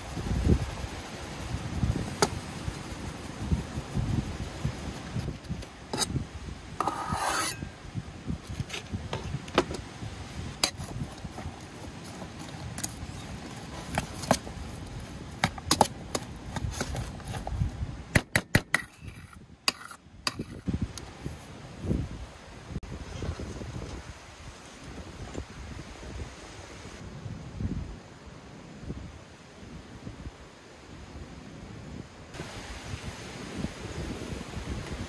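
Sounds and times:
cleaver scraping metal pot: 5.9s - 6.2s, 6.8s - 7.7s, 18.7s - 20.6s.

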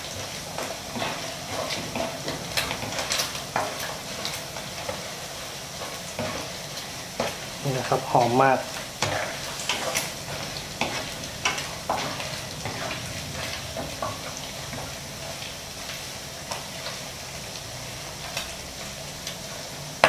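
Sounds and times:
wooden spatula scraping pan: 0.0s - 15.4s
pork sizzling in hot oil: 0.0s - 20.0s.

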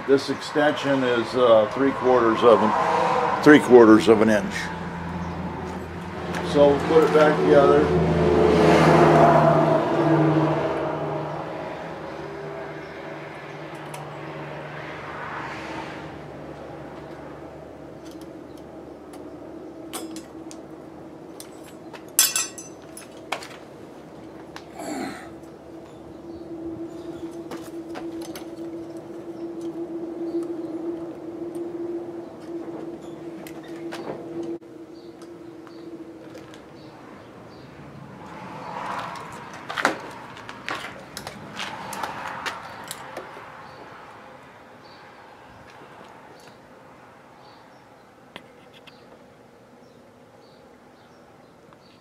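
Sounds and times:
metallic clatter: 21.4s - 23.3s
screws clinking on metal box: 22.2s - 23.1s.

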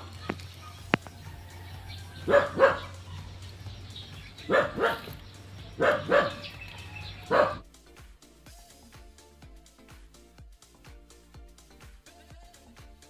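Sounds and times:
dog barking: 2.2s - 3.4s, 4.4s - 7.6s.

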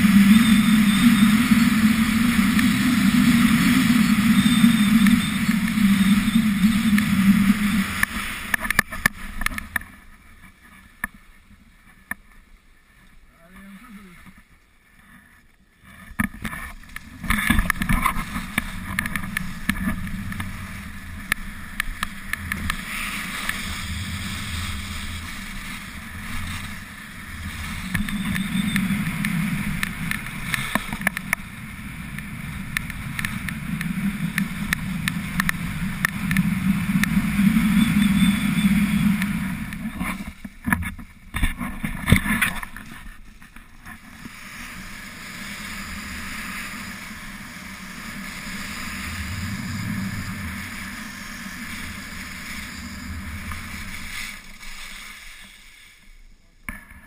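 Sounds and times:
wind on microphone: 0.0s - 9.8s, 16.2s - 42.9s
skis scraping over snow: 0.0s - 11.0s, 14.9s - 56.2s.

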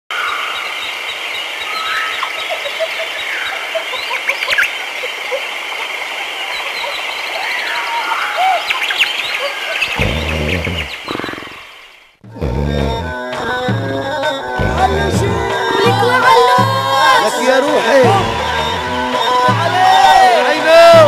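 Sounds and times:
birds chirping: 0.1s - 21.0s
music with low drum: 12.3s - 17.2s, 18.0s - 20.2s
high-pitched background chorus: 12.9s - 21.0s.

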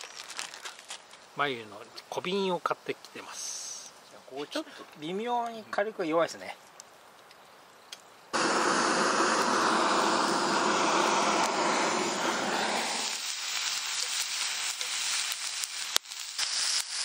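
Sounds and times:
crackles: 0.0s - 5.0s, 6.5s - 17.0s
steak sizzling in a frying pan: 12.9s - 17.0s.

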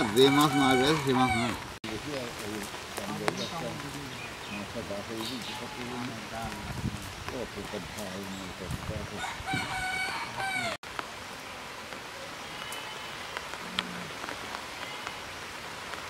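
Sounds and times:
rooster crowing: 0.0s - 1.6s, 9.2s - 10.8s.

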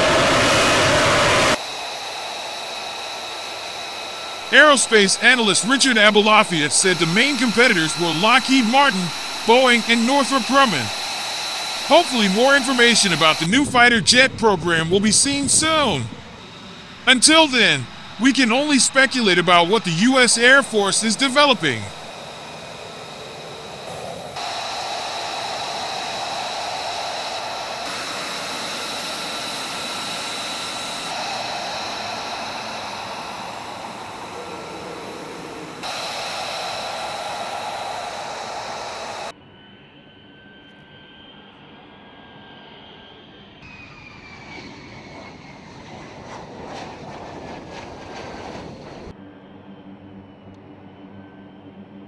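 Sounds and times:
jet engine rush and high whine: 0.0s - 52.0s.

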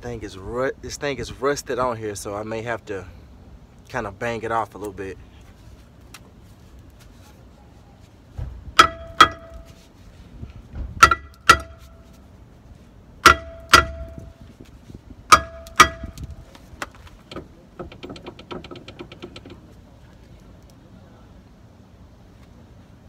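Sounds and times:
hammer clanging on metal rotor: 8.8s - 9.7s, 11.0s - 12.0s, 13.2s - 14.4s, 15.3s - 16.3s.

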